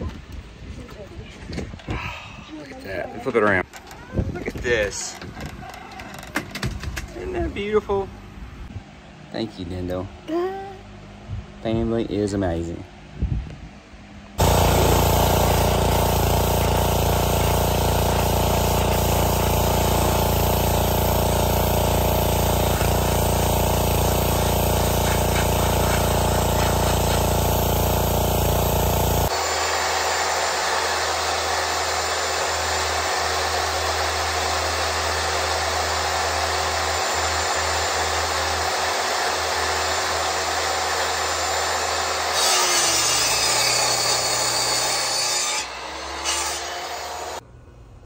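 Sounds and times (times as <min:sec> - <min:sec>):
pressure washer spraying wood: 0:14.4 - 0:47.4.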